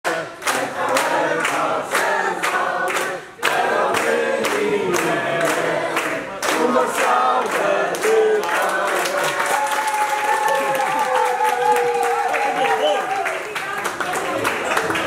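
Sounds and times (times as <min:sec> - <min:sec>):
people clapping in unison: 0:00.0 - 0:15.0
group singing: 0:00.1 - 0:09.6.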